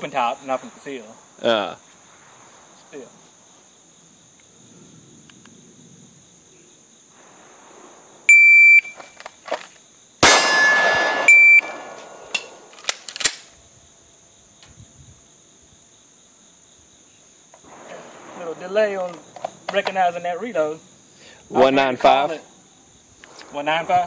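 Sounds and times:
pistol shots: 0:10.2 - 0:13.5
shot timer beep: 0:10.8 - 0:11.7.

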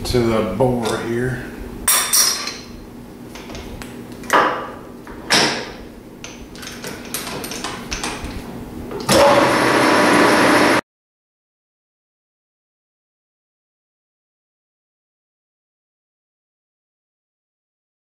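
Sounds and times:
metal lathe whirring: 0:09.1 - 0:10.8.

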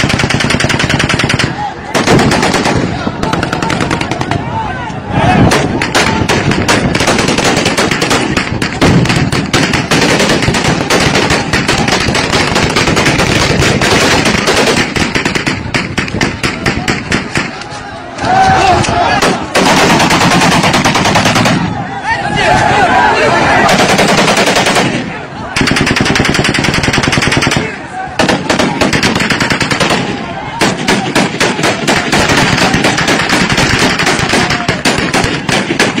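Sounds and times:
guns firing: 0:00.0 - 0:04.5, 0:05.4 - 0:17.7, 0:19.1 - 0:21.8, 0:23.6 - 0:36.0
crowd of men talking: 0:01.2 - 0:06.9, 0:15.5 - 0:19.6, 0:20.6 - 0:34.9.

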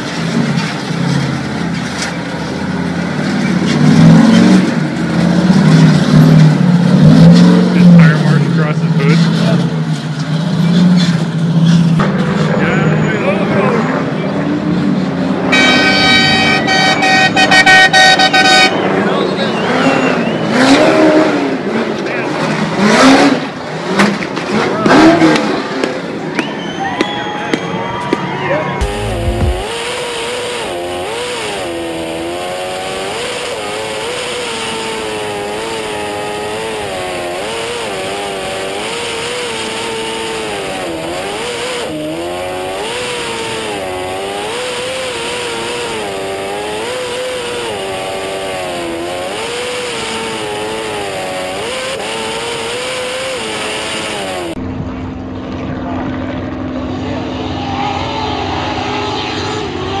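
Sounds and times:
boat engine revving: 0:28.8 - 0:54.6
boat engine from trackside: 0:28.8 - 1:00.0.

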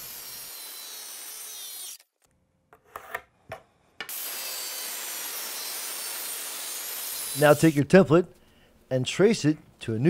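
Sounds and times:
circular saw cutting plywood: 0:00.0 - 0:02.0, 0:04.1 - 0:07.8.

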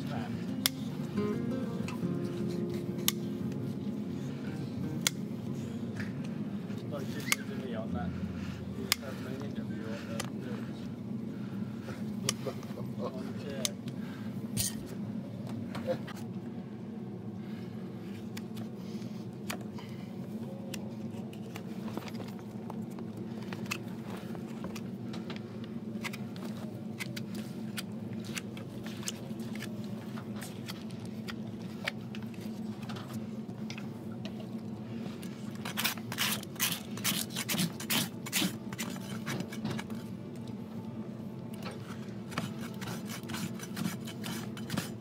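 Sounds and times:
steady low hum: 0:00.0 - 0:45.0
hoof knife scraping hoof: 0:35.6 - 0:40.1, 0:41.9 - 0:45.0
rasp strokes across hoof: 0:42.3 - 0:45.0.

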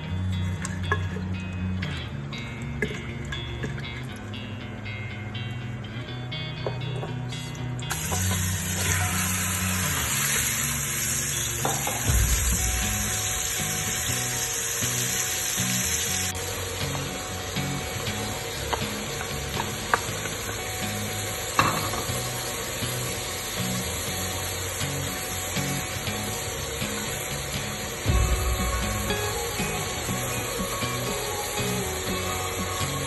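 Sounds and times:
meat sizzling in oil: 0:07.9 - 0:33.0.

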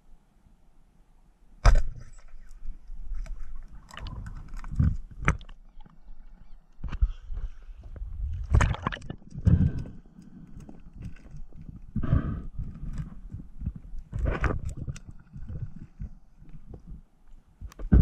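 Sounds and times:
scraping and rumbling: 0:06.9 - 0:17.0.

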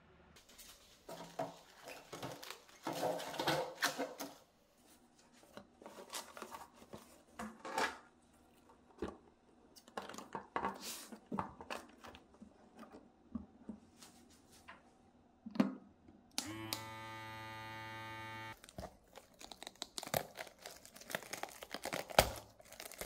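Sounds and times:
plastic containers knocking and clicking: 0:01.1 - 0:04.4, 0:09.8 - 0:13.5.

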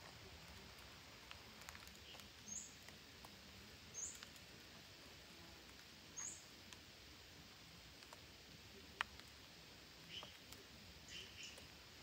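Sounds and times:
faint ticks: 0:00.0 - 0:04.5, 0:08.0 - 0:08.2, 0:08.9 - 0:09.4
background hiss: 0:00.0 - 0:12.0.

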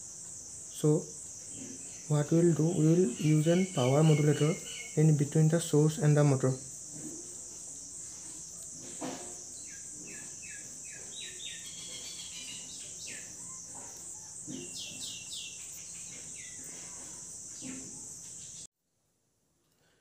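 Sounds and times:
insects buzzing: 0:00.0 - 0:18.7
bird chirps: 0:01.5 - 0:05.2, 0:09.5 - 0:18.6.

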